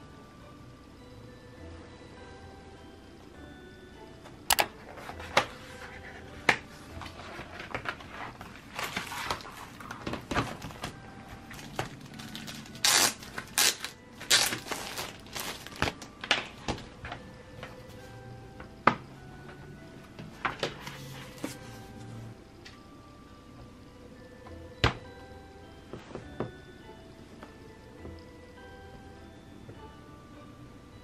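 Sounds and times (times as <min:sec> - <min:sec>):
plastic crinkling: 0:07.2 - 0:16.6.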